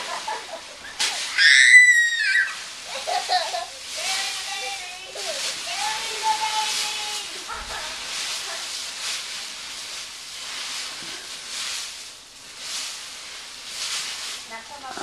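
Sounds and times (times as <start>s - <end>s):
dry leaves rustling and crunching: 0.0s - 15.0s
high-pitched voice squeal: 1.2s - 3.6s.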